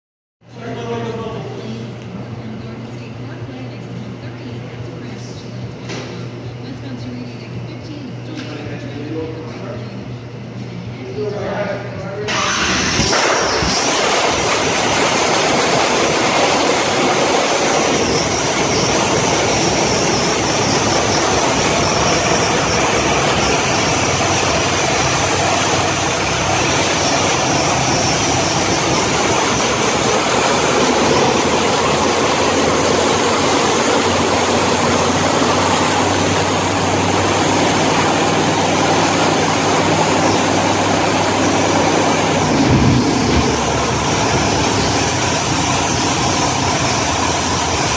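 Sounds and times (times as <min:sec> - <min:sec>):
loud car engine idling: 0:12.3 - 0:47.9.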